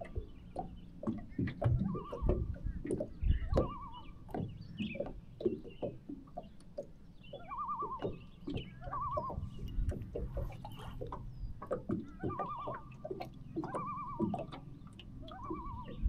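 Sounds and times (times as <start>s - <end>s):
water lapping against boat: 0.0s - 16.0s
loon tremolo calls: 8.8s - 9.7s, 13.6s - 14.4s, 15.2s - 16.0s.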